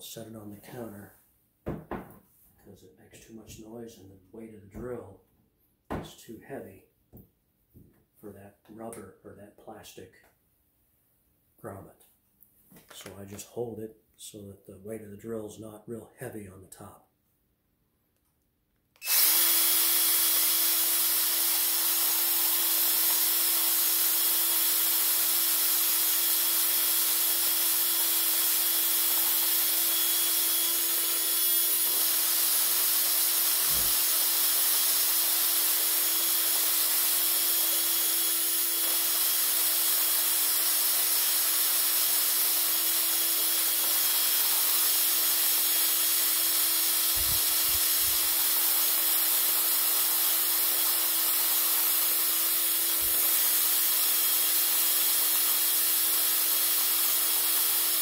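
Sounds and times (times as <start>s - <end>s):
coffee grinder grinding beans: 19.0s - 58.0s
drill motor hum: 19.0s - 58.0s.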